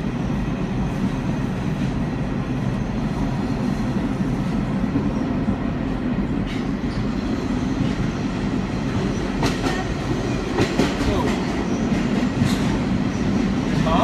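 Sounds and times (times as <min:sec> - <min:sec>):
subway train rail rumble: 0:00.0 - 0:14.0.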